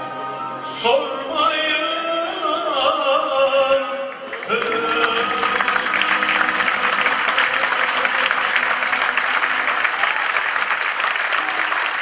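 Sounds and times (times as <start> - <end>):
audience applauding: 4.1 - 12.0.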